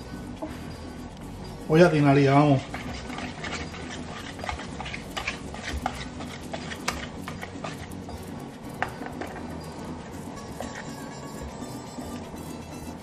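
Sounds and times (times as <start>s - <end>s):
whisk scraping plastic bowl: 1.8s - 9.4s.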